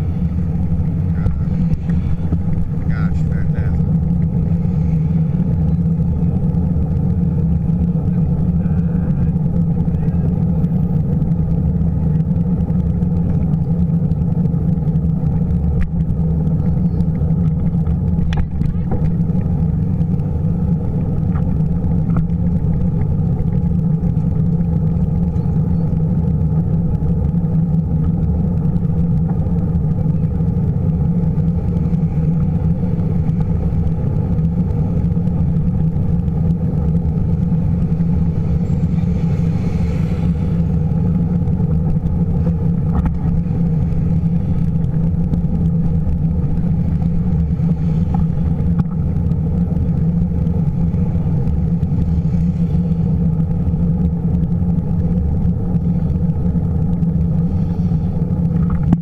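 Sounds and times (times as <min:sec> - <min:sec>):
road traffic: 0:00.0 - 0:59.0
wind buffeting microphone: 0:00.0 - 0:59.0
passing vehicle hiss: 0:38.0 - 0:41.4.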